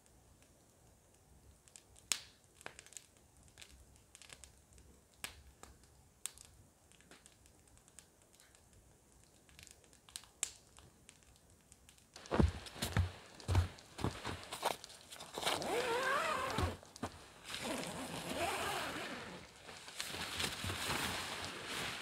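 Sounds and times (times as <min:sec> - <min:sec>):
wood fire crackling in stove: 0:00.0 - 0:15.6, 0:16.2 - 0:17.6, 0:19.3 - 0:22.0
heavy footsteps: 0:12.2 - 0:14.8.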